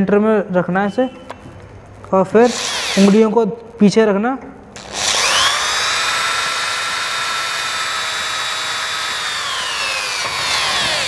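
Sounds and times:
power drill boring into metal: 2.4s - 3.3s, 4.8s - 11.0s.

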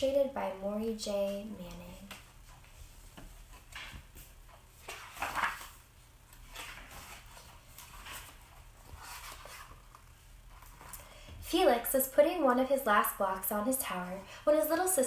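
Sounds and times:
book pages turning: 3.5s - 11.1s.

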